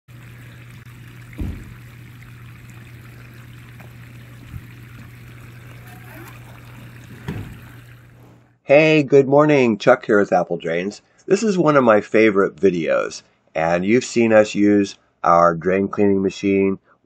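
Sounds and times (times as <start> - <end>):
water trickling and bubbling: 0.0 - 8.3
thump: 1.4 - 1.8, 7.2 - 7.7.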